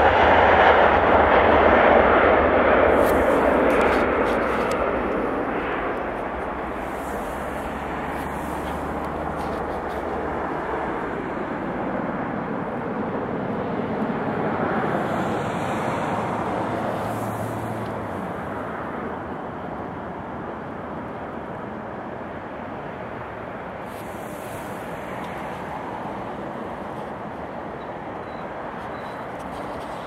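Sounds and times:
jet airliner climbing: 0.0s - 18.9s.

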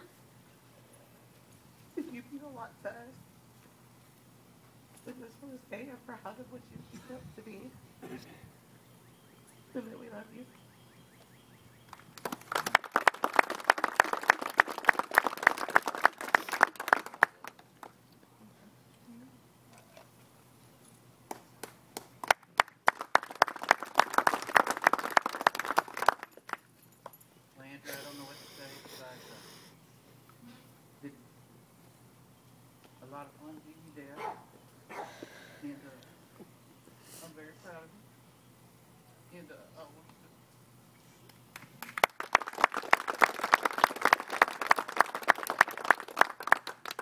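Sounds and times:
group clapping: 11.9s - 18.0s, 21.3s - 26.7s, 41.5s - 47.0s.

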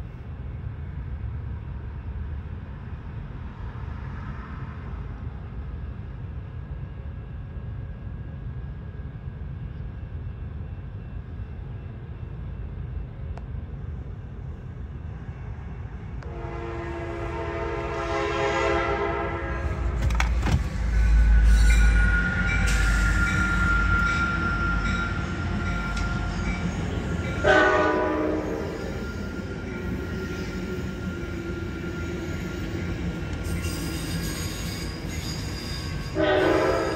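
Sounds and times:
train rumbling past: 0.0s - 36.9s
train air horn blast: 16.2s - 20.0s, 27.4s - 28.8s, 36.2s - 36.9s.

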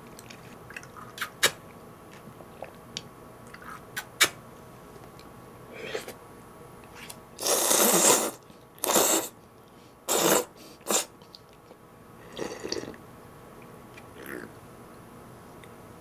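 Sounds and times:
soft mouth sounds: 0.2s - 2.9s, 3.5s - 4.4s, 5.7s - 6.2s, 14.0s - 14.6s
noodles being slurped: 7.0s - 9.3s.

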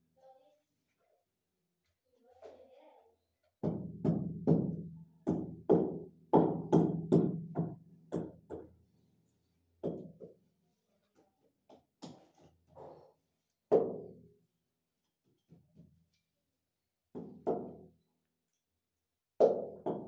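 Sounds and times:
tool knocking on ceramic tile: 3.6s - 8.7s, 9.8s - 10.4s, 17.1s - 17.8s, 19.4s - 20.0s.

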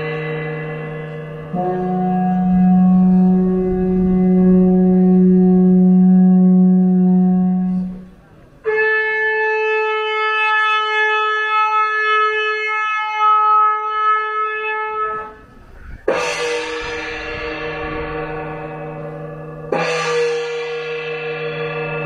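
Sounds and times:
gong ringing: 0.0s - 9.2s, 15.1s - 22.0s
horn holding a long note: 0.0s - 22.0s.

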